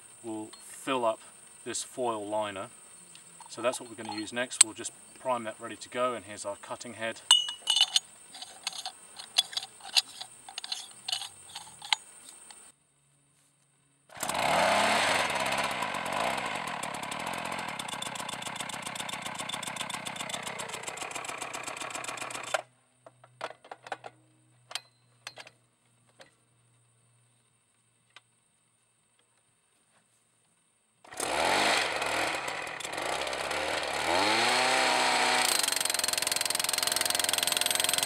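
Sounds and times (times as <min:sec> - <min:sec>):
metal parts clinking: 0:03.4 - 0:04.8, 0:07.2 - 0:12.6
percussion hammer engine running: 0:14.2 - 0:22.6, 0:31.2 - 0:38.0.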